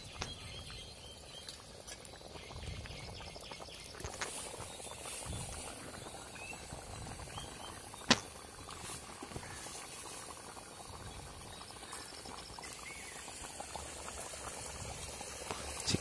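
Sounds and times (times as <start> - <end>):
gravy bubbling in a pot: 0.0 - 16.0.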